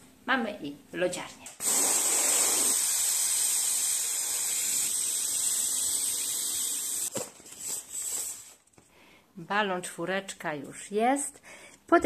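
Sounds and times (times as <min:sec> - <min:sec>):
gas hissing into balloon: 0:01.6 - 0:07.1.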